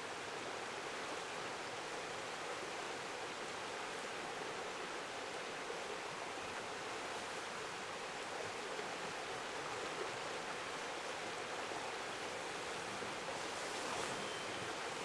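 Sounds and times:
river rapids rushing: 5.0s - 15.0s.

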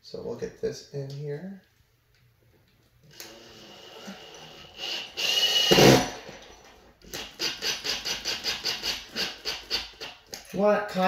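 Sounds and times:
cordless drill whirring: 3.1s - 6.4s.

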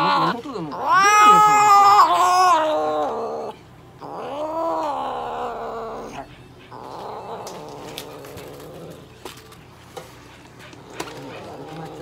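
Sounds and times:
cat yowling: 0.0s - 9.0s.

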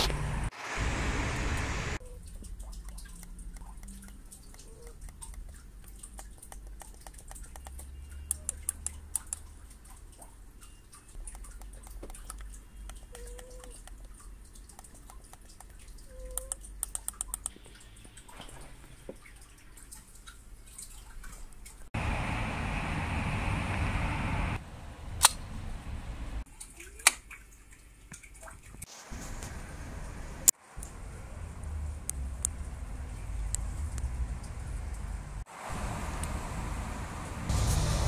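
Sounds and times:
steady rushing noise: 0.0s - 2.0s
mouse buttons clicking: 6.6s - 9.4s.

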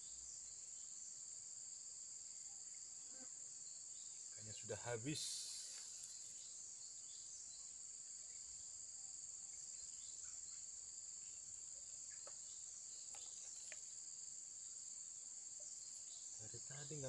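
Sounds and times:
insects chirping chorus: 0.0s - 17.0s
faint clicks: 13.0s - 13.9s.

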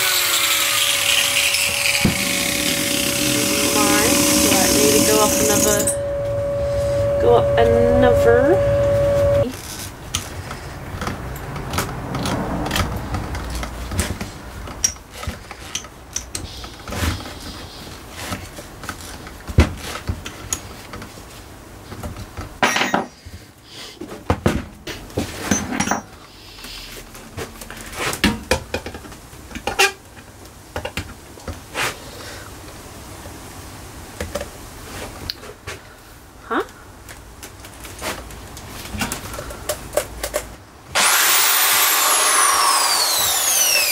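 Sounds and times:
drill bits clinking and rattling: 0.1s - 6.1s, 41.0s - 43.9s.

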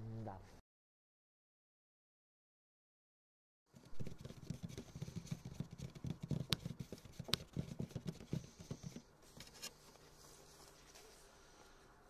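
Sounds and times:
hands rubbing and knocking object: 3.8s - 11.2s.

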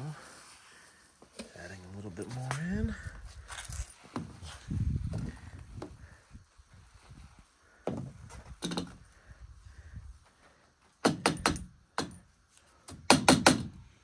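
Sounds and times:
sharp clicks and knocks: 8.5s - 9.0s.

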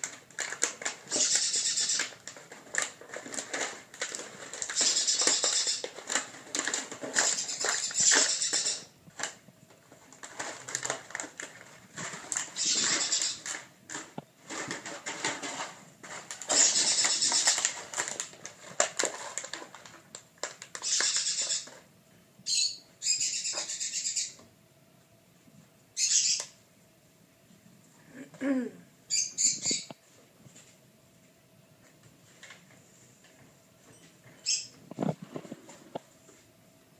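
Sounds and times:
puppies scrabbling on tile floor: 0.0s - 21.9s
toys rustling and knocking: 0.0s - 21.9s.

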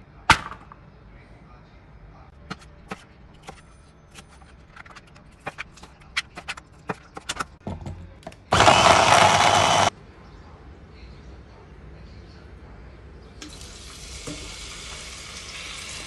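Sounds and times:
electric blender running: 8.5s - 9.9s.

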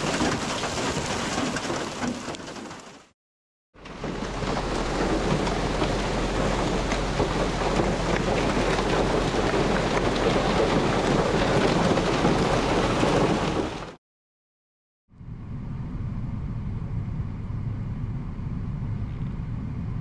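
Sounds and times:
hail hitting the ground: 0.0s - 3.1s, 3.8s - 14.0s.

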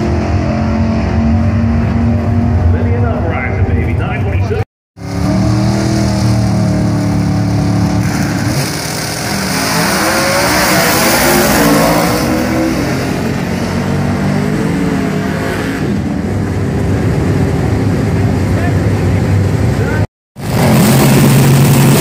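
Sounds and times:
race car engine revving: 5.0s - 22.0s.

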